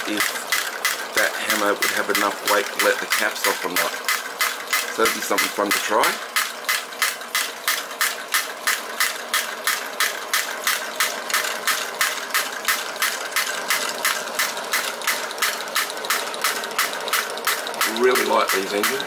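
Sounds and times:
gas burner roaring: 0.0 - 19.0
toy drop hammer clacking: 10.3 - 19.0.

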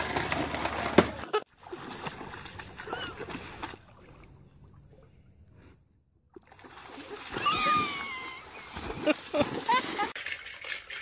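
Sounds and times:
dog splashing through water: 1.6 - 4.0, 6.4 - 10.3
high drawn-out falling cry: 7.4 - 8.6.

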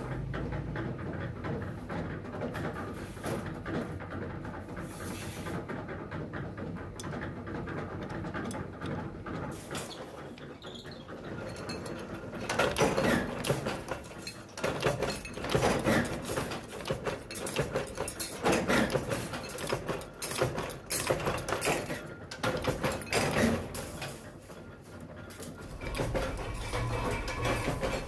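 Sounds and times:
clatter of loose steel blanks: 0.0 - 28.0
power press stamping metal: 11.2 - 24.3, 25.6 - 28.0.

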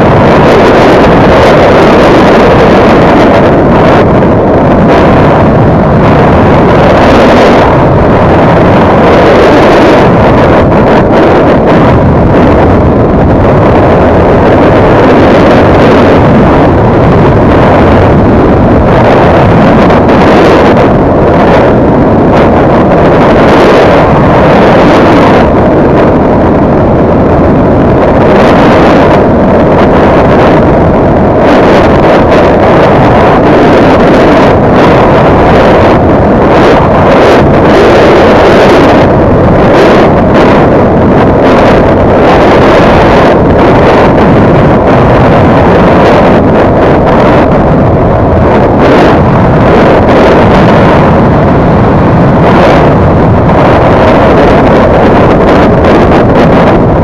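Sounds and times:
wind rush on microphone: 0.0 - 57.0.

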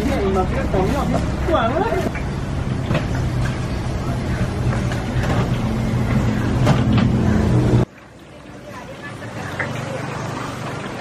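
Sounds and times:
low engine hum: 0.0 - 7.9.

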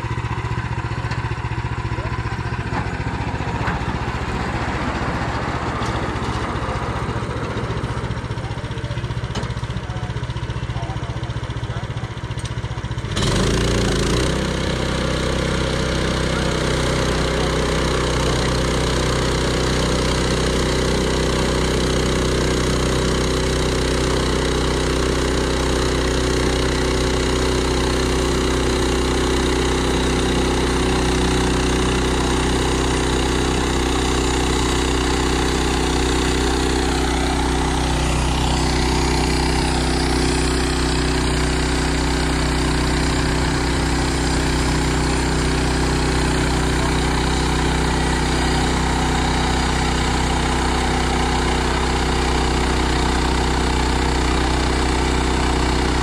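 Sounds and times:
small gasoline engine: 0.0 - 56.0.

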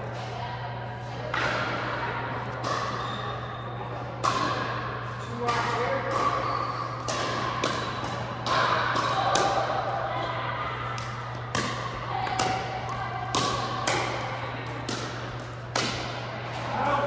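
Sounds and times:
paddles hitting plastic ball: 10.9 - 16.7.

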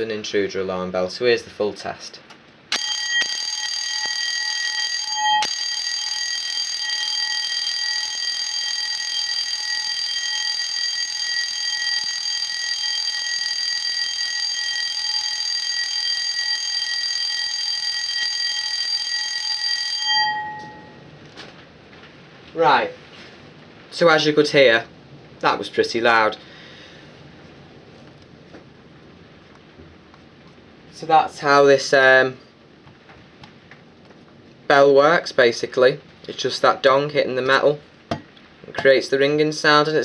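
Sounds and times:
alarm bell ringing: 2.7 - 21.0.

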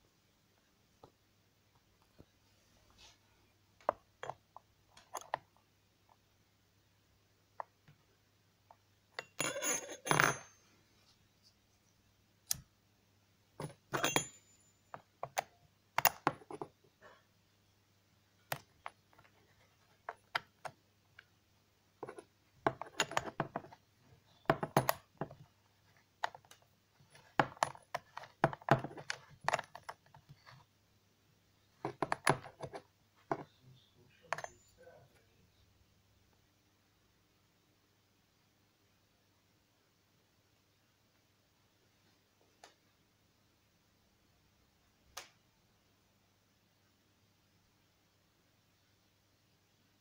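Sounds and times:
metallic clicks and clinks: 9.2 - 10.6, 13.6 - 15.4.

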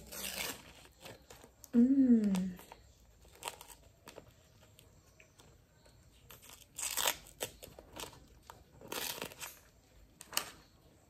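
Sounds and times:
ice cream wrapper crinkling and ripping: 0.0 - 10.7.

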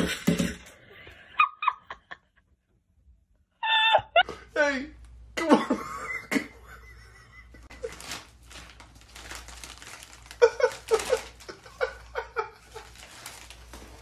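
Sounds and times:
person laughing: 3.6 - 4.5, 5.4 - 8.2, 10.2 - 13.4
plastic bag crinkling: 7.7 - 14.0.

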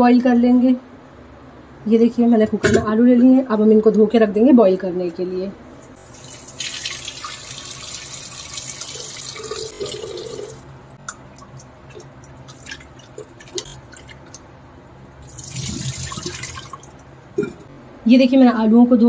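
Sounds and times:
tap water running into pot: 6.0 - 10.6, 15.2 - 17.0
water poured into steel sink: 15.2 - 16.9.

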